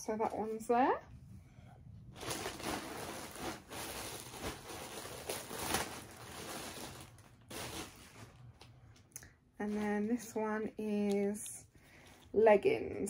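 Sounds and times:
clothing rustling: 2.1 - 8.6.

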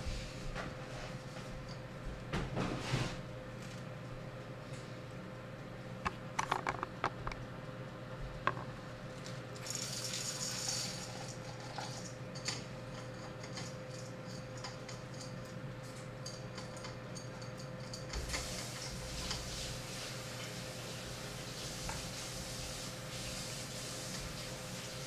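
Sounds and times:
coffee beans poured into grinder: 9.6 - 12.2.

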